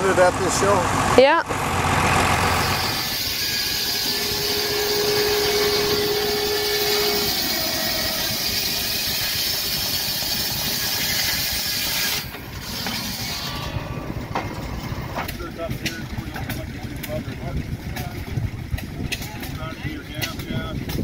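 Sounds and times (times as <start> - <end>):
circular saw cutting wood: 2.1 - 16.6.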